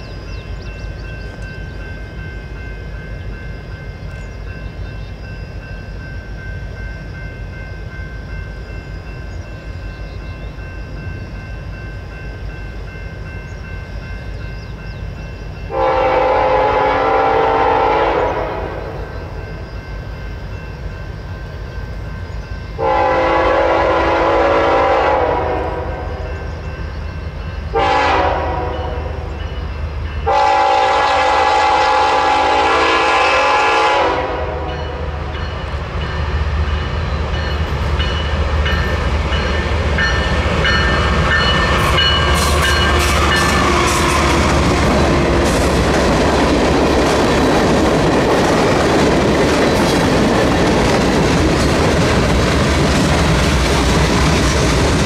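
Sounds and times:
freight train engine rumble: 0.0 - 55.0
locomotive horn blasts: 15.7 - 19.2, 22.8 - 26.3, 27.7 - 29.3, 30.2 - 35.2.

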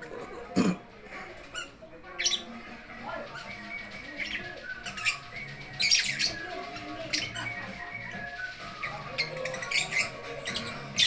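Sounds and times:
lovebirds squawking and chirping: 1.3 - 11.0.

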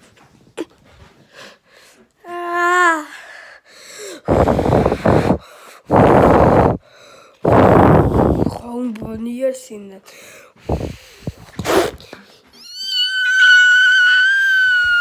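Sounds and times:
loud breathy huffs: 0.9 - 2.1, 3.1 - 8.6, 10.1 - 12.5
child's high wavering vocal sound: 2.2 - 3.3.

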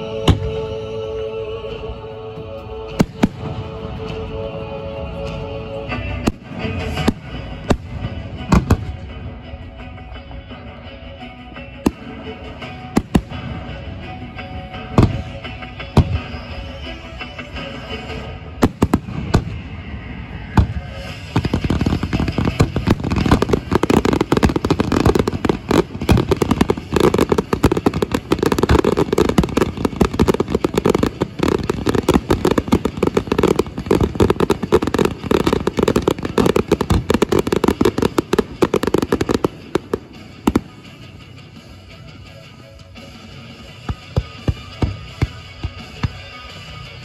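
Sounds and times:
fireworks booming: 18.6 - 41.2.

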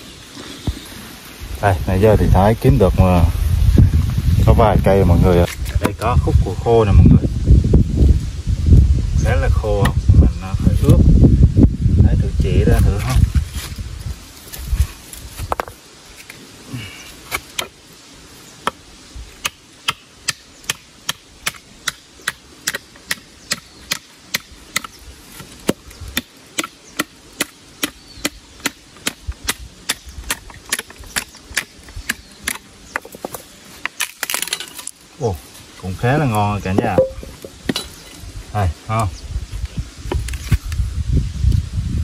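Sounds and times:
blade chopping firewood: 19.4 - 35.0, 36.7 - 38.0.

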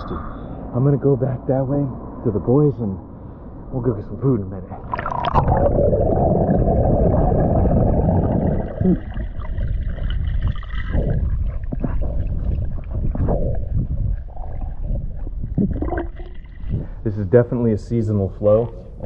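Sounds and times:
water rushing underwater: 4.7 - 17.0.

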